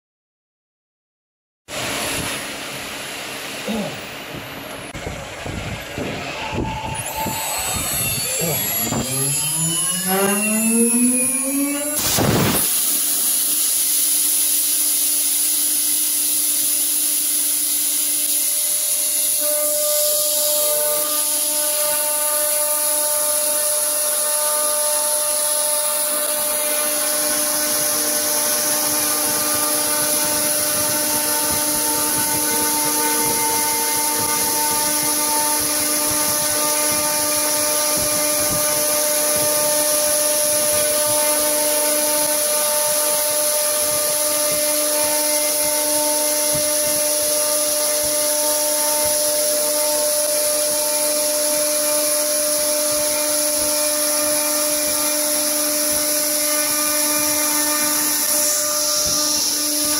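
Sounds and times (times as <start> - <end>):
router spindle high whine: 1.7 - 59.9
steady tones: 1.8 - 50.9, 55.0 - 59.9
cutter rasping through wood: 7.0 - 12.7, 18.2 - 59.9.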